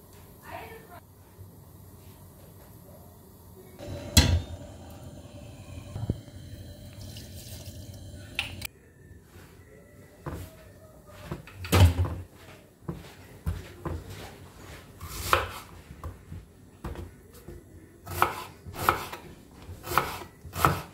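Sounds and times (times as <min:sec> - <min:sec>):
pots and utensils clattering: 0:03.8 - 0:05.0.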